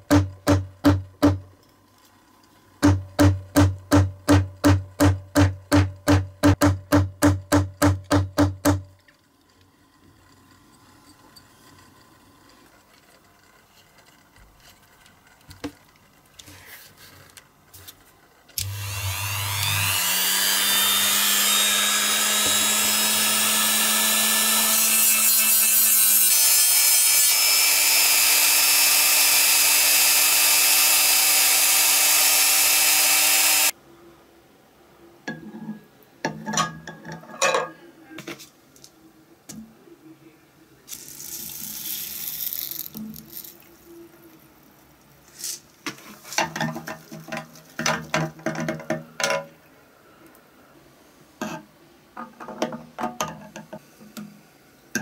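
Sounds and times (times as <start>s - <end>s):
rotary tool whining: 18.6s - 33.7s.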